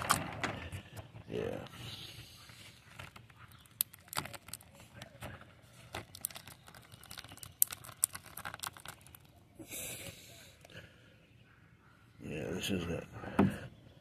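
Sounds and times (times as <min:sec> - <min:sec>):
tape crinkling and crackling: 0:02.4 - 0:09.5.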